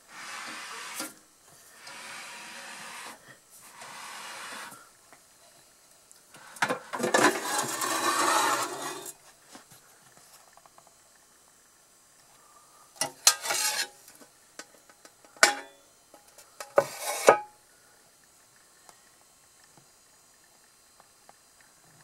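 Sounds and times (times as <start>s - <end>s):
metal tray drawer sliding out: 7.0s - 9.1s.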